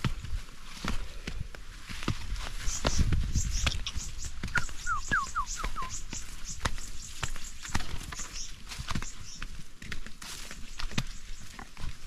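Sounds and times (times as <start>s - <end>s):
footsteps on forest trail: 0.0s - 12.0s
leaves and brush rustling: 0.0s - 12.0s
walking stick knocking: 2.0s - 12.0s
bird whistling: 3.4s - 6.3s.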